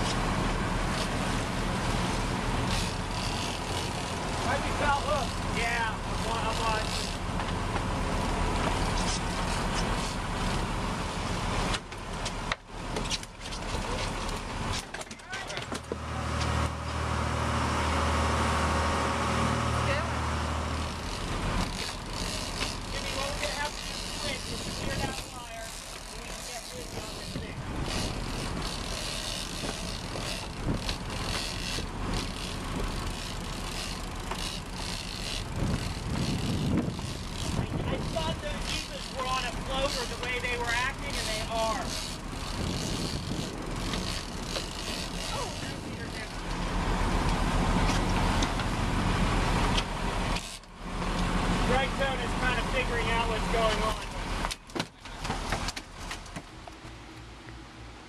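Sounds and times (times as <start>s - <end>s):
boat engine running: 0.0s - 58.0s
wind and water rushing: 27.4s - 28.8s.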